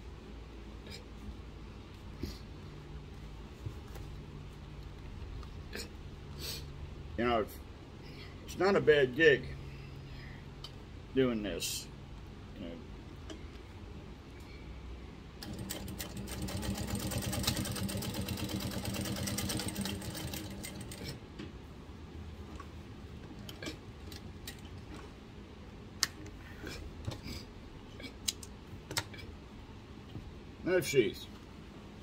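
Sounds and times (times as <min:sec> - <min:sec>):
sewing machine stitching leather: 0:15.4 - 0:21.2.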